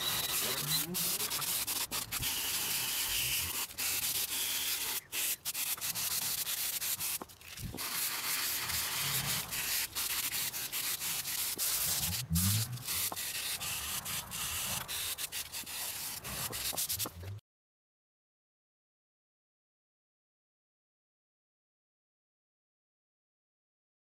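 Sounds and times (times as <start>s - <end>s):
wooden spoon scratching on sanding mesh: 0.0s - 17.3s.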